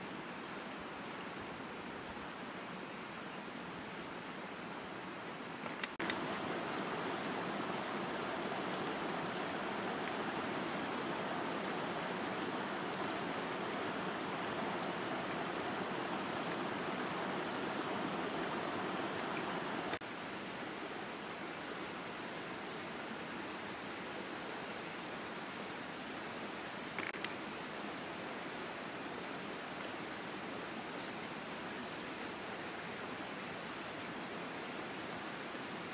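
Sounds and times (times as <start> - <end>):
steady rushing outdoor noise: 4.0 - 30.8.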